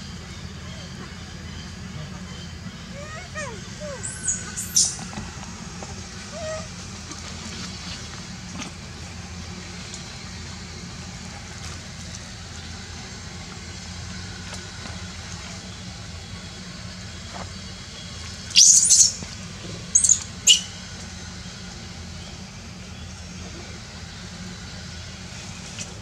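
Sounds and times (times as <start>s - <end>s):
steady low hum: 0.0s - 26.0s
young monkey squealing: 2.2s - 5.1s, 6.3s - 6.8s, 18.6s - 19.2s, 20.0s - 20.7s.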